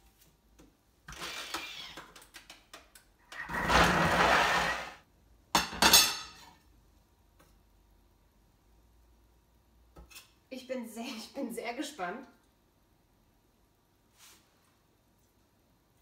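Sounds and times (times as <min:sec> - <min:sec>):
blender blade whirring: 0:03.4 - 0:05.0.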